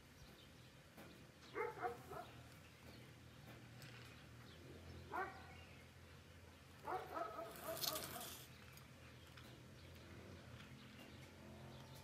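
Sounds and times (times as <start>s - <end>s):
dog barking: 1.6s - 2.4s, 5.1s - 5.5s, 6.8s - 8.3s.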